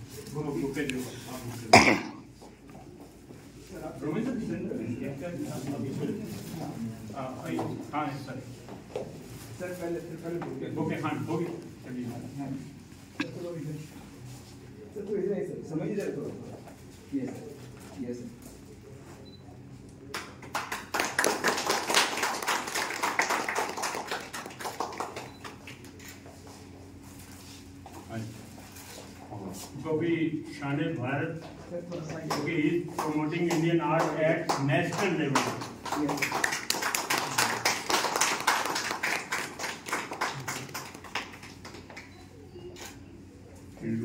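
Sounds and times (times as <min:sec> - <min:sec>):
audience applause: 0:20.4 - 0:25.4, 0:34.0 - 0:42.0.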